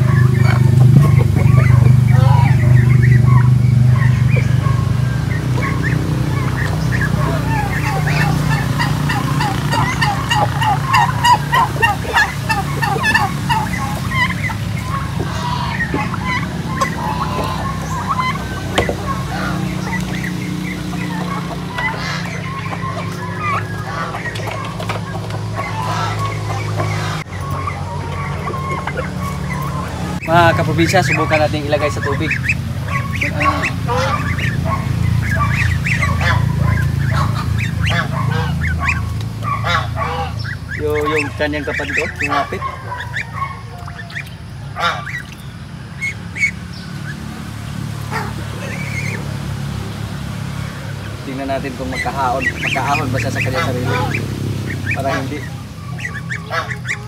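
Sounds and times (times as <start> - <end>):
geese honking: 0.0 - 57.0
turkeys and chickens calling: 0.0 - 57.0
sharp taps: 18.7 - 19.1.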